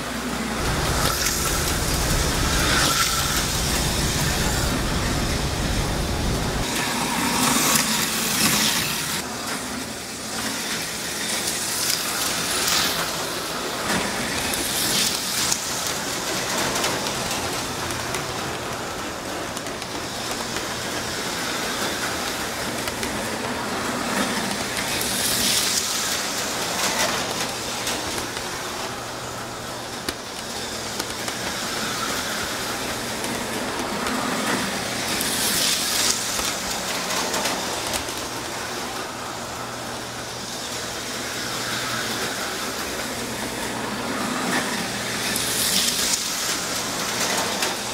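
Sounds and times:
steady hiss and low hum: 0:00.2 - 0:06.7
slot cars whirring past: 0:00.4 - 0:09.2, 0:21.0 - 0:47.9.

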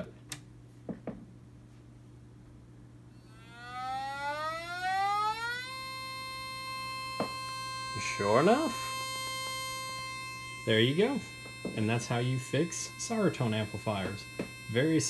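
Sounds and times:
low steady hum: 0:00.0 - 0:15.0
siren tone: 0:03.2 - 0:15.0
clicks: 0:14.0 - 0:14.8.

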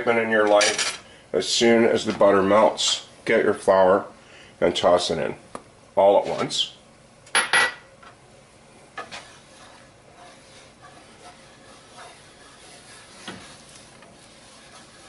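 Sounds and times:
whisk scraping a pan: 0:09.0 - 0:15.0.

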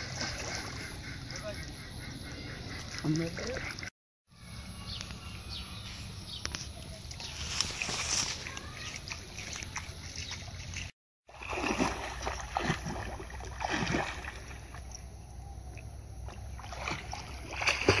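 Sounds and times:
swimming splashes: 0:00.0 - 0:01.5, 0:07.2 - 0:14.9, 0:16.2 - 0:18.0.

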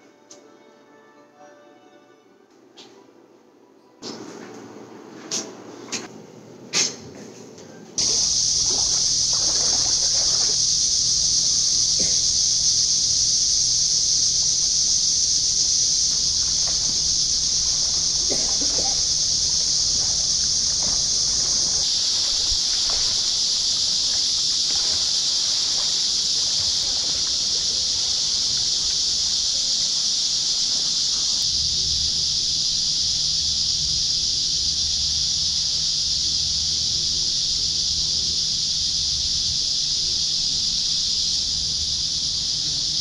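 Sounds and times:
faint swimming splashes: 0:08.0 - 0:12.2, 0:16.1 - 0:31.4
high-pitched insect chorus: 0:08.0 - 0:43.0.

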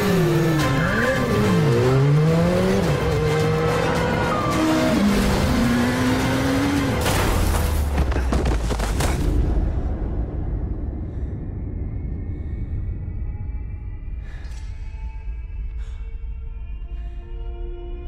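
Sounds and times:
motorcycle engine revving: 0:00.0 - 0:07.0
film soundtrack music: 0:00.0 - 0:18.0
deep rumble: 0:08.0 - 0:17.0.

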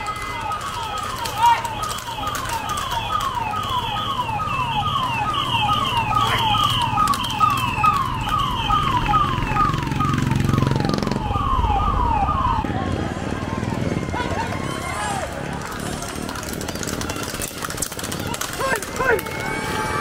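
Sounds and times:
electronic siren yelping: 0:00.0 - 0:14.8.

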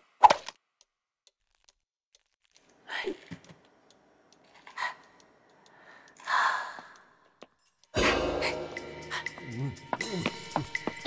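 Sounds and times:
faint clicks: 0:00.8 - 0:08.0.

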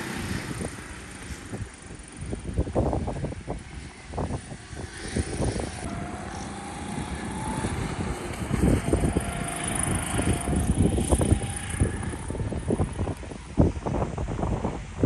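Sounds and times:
go-kart engine buzzing: 0:00.0 - 0:14.8
wind buffeting microphone: 0:00.0 - 0:15.0.

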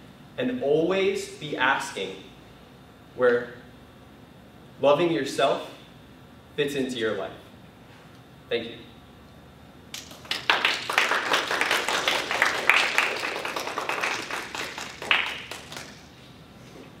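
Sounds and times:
audience applauding: 0:10.0 - 0:16.1.

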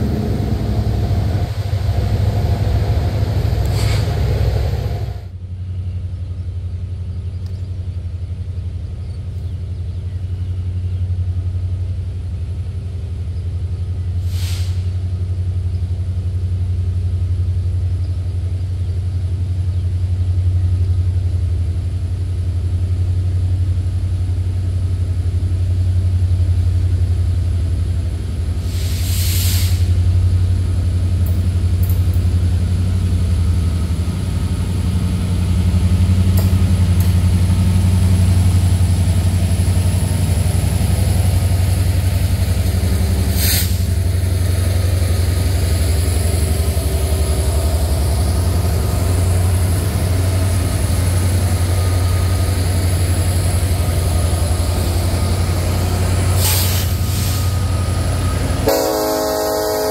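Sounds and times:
loud engine sound: 0:00.0 - 0:05.3
diesel locomotives idling: 0:00.0 - 0:59.9
brief hissing: 0:03.7 - 0:04.3, 0:14.2 - 0:15.0, 0:28.6 - 0:30.0, 0:43.2 - 0:44.0, 0:56.3 - 0:57.7.

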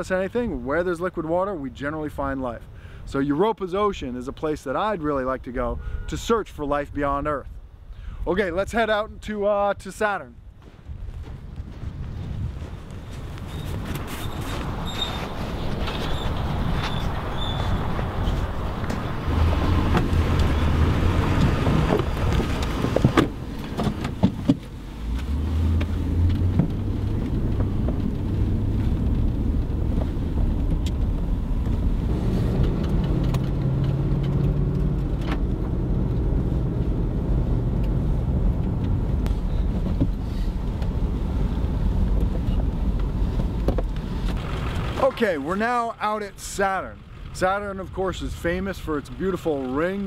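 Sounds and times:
truck engine running: 0:25.2 - 0:50.0.

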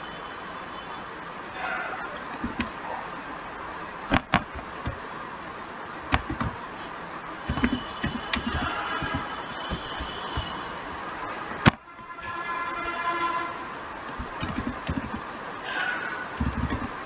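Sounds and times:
faint steady tone: 0:00.0 - 0:16.9
room noise hiss: 0:00.0 - 0:17.0
keyboard and mouse clicking: 0:02.2 - 0:02.8, 0:06.1 - 0:06.6, 0:07.5 - 0:10.6, 0:14.1 - 0:15.3, 0:16.3 - 0:17.0.

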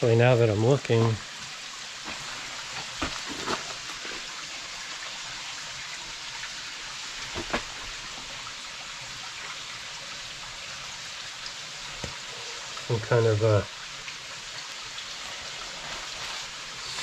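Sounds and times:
water rushing over rocks: 0:02.0 - 0:09.0.

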